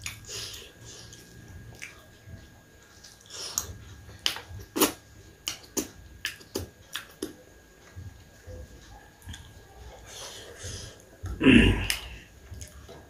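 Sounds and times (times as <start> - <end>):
person chewing: 0.0 - 2.1, 3.0 - 7.4, 9.2 - 13.0.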